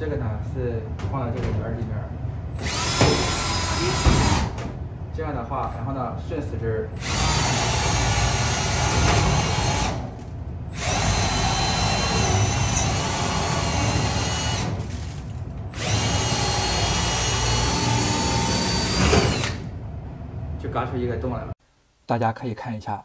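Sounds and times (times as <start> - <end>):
drill cutting sheet metal: 2.6 - 4.6, 7.0 - 10.1, 10.7 - 19.7.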